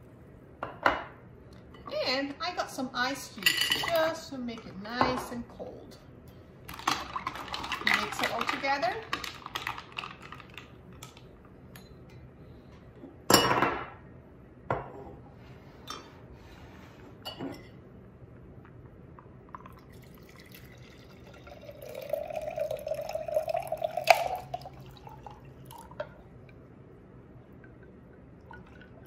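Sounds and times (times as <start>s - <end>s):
drink pouring into glass jar: 19.6s - 26.0s.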